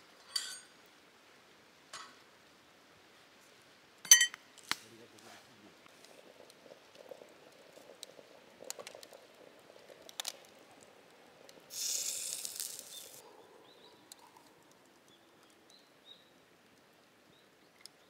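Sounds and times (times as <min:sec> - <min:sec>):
wood fire crackling: 0:00.0 - 0:18.0
moka pot hissing and sputtering: 0:05.2 - 0:14.8.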